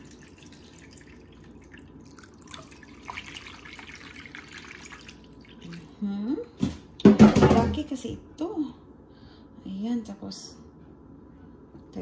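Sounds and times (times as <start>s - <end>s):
water running into a pan: 0.0s - 6.0s.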